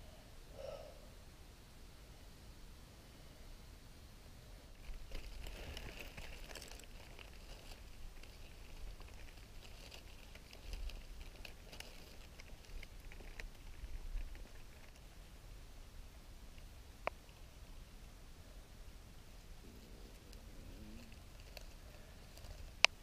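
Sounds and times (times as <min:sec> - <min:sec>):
dry leaves and twigs crackling: 0:04.7 - 0:15.4, 0:19.2 - 0:23.0.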